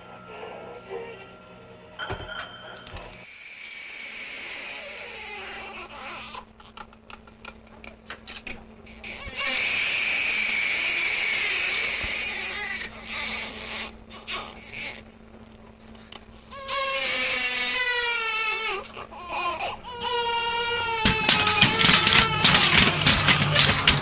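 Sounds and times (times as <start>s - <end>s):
steady low hum: 0.0s - 24.0s
harsh noisy hiss: 3.2s - 6.6s, 8.7s - 18.9s.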